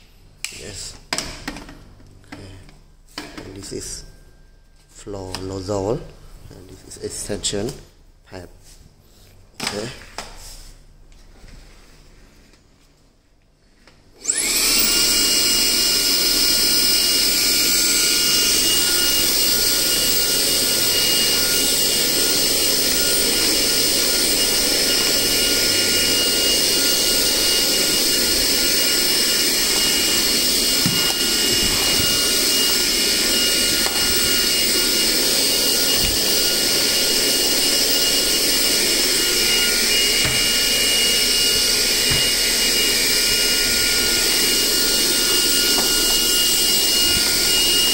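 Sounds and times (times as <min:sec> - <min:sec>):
vacuum cleaner whining: 0:13.8 - 0:47.9.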